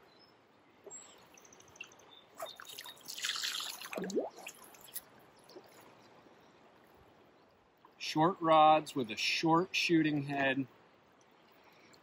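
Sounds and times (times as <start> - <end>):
water dripping: 0.8 - 6.1
rush of moving water: 1.1 - 7.2
water splash: 1.8 - 5.8.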